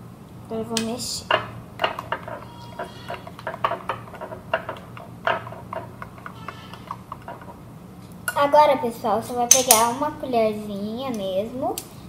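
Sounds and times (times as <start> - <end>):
spoon stirring slime in a bowl: 1.3 - 7.6.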